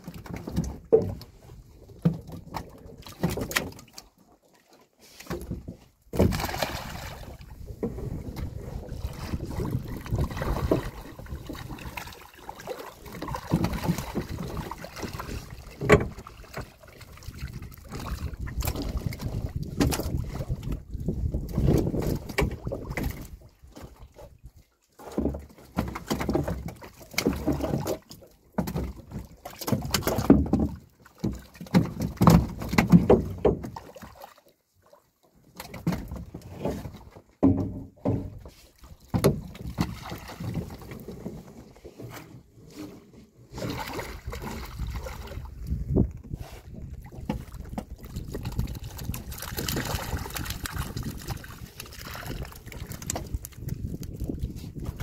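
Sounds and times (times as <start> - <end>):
water splashing and sloshing: 0.0 - 55.0.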